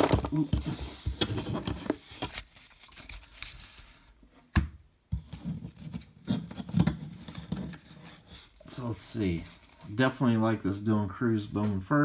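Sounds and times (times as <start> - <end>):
trading cards rustling: 0.0 - 4.1, 8.4 - 10.6.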